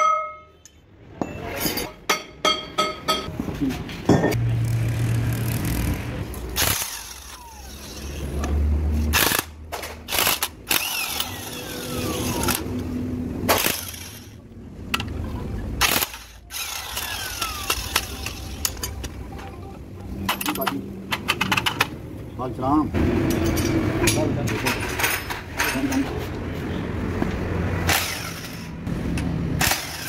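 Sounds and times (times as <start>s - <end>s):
engine running in background: 3.4s - 30.0s
metallic clanks of hand tools: 20.2s - 21.9s, 23.3s - 26.2s.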